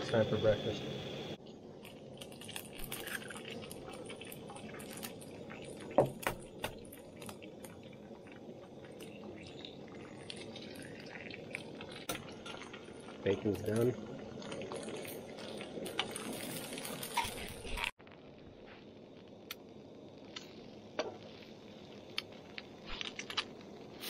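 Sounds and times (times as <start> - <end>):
bacon sizzling in a frying pan: 1.4 - 18.0.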